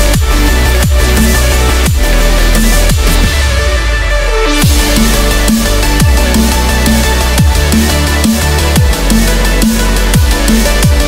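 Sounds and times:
deep kick drums: 0:00.0 - 0:03.8, 0:04.5 - 0:11.0
sustained synth notes: 0:00.0 - 0:11.0.

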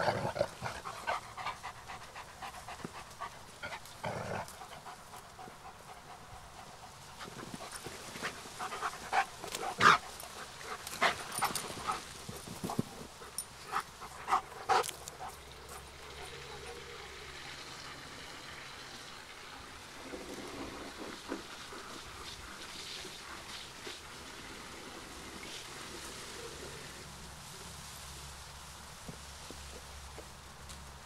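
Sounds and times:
dog panting: 0:00.0 - 0:16.8.

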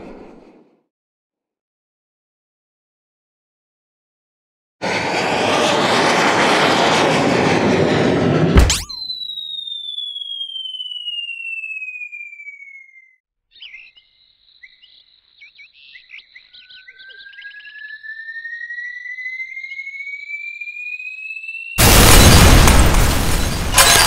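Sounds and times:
crash: 0:04.8 - 0:09.0, 0:21.8 - 0:24.0
warbling chirps: 0:08.6 - 0:13.2, 0:13.9 - 0:24.0
whistle tone gliding down: 0:08.6 - 0:13.2, 0:16.5 - 0:22.4
whistle tone gliding upward: 0:08.6 - 0:13.2, 0:16.5 - 0:21.8.

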